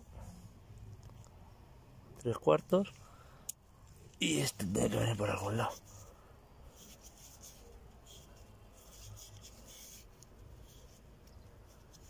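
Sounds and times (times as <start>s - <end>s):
gloved hand rubbing oil filter: 5.2s - 12.0s.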